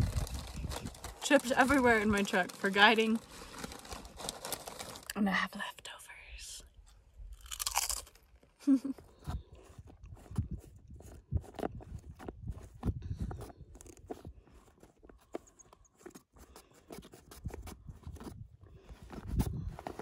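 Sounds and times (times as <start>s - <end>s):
nylon cover rustling: 0.0s - 5.1s.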